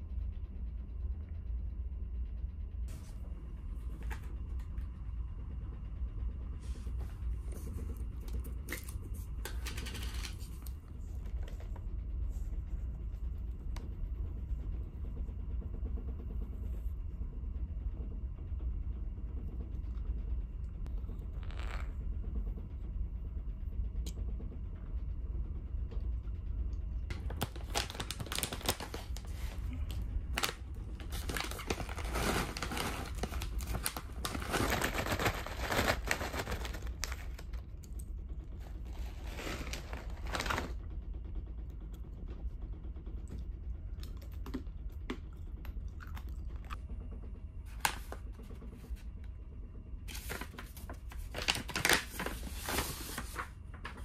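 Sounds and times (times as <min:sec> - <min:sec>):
plastic bag crinkling: 0:27.2 - 0:29.6, 0:30.3 - 0:37.4.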